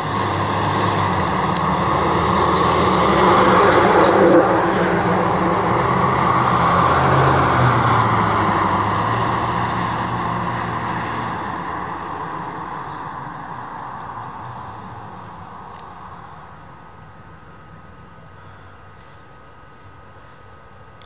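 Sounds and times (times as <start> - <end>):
fire engine passing: 0.0 - 17.8.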